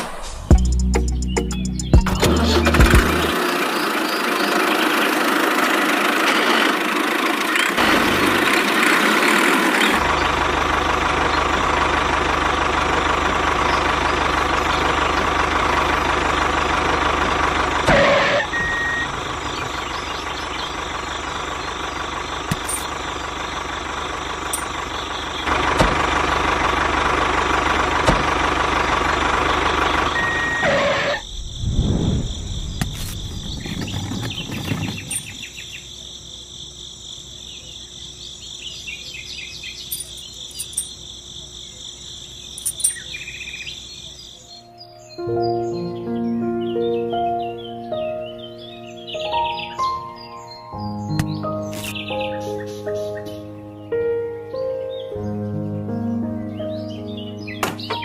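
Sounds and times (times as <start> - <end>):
engine running: 0.0 - 35.6.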